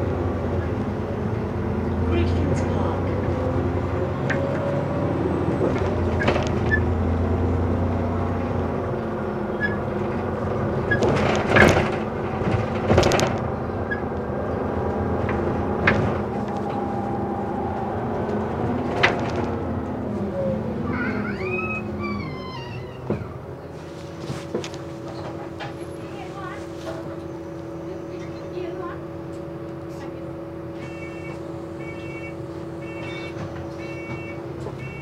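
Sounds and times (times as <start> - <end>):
bus engine and road drone: 0.0 - 35.0.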